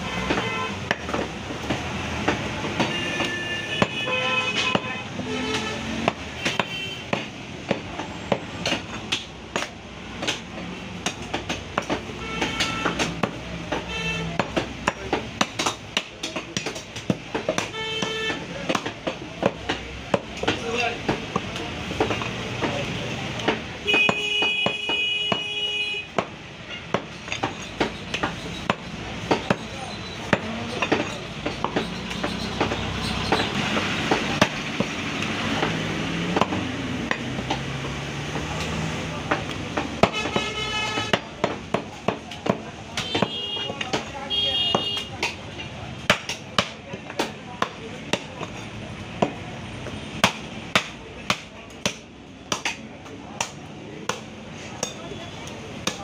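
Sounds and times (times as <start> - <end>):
murmur of voices: 27.8 - 56.0.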